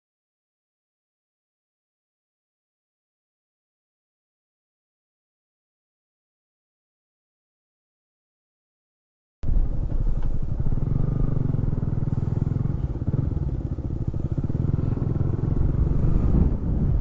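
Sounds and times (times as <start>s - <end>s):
motorcycle engine running: 9.4s - 17.0s.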